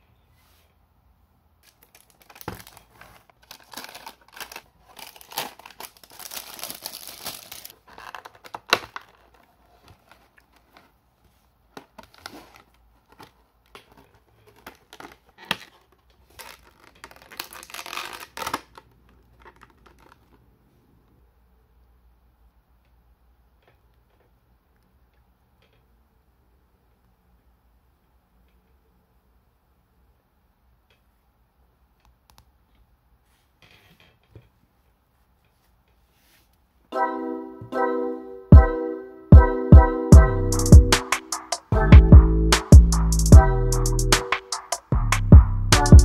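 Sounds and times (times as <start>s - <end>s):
paper rustling and crinkling: 1.6s - 20.5s.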